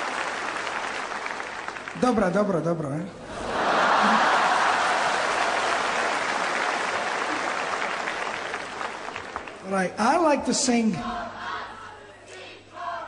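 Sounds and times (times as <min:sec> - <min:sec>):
audience applause: 0:00.0 - 0:02.3, 0:03.4 - 0:09.8.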